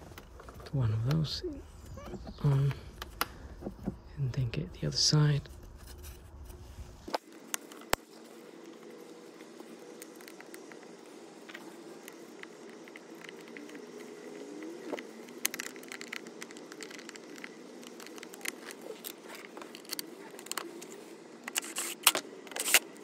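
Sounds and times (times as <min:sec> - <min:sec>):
clicks and scrapes of plastic parts: 0:09.6 - 0:23.0.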